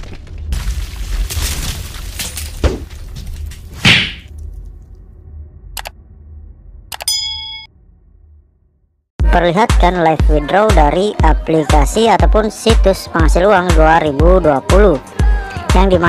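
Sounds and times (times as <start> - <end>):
short ringing ding: 7.0 - 7.7.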